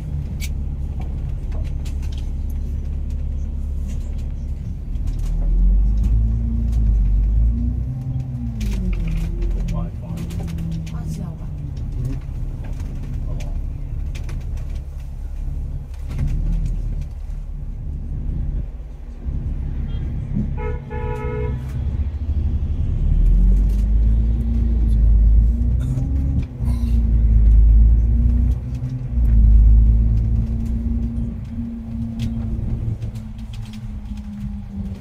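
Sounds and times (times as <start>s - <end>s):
bus engine rumbling: 0.0s - 35.0s
vehicle horn toot: 19.9s - 21.7s.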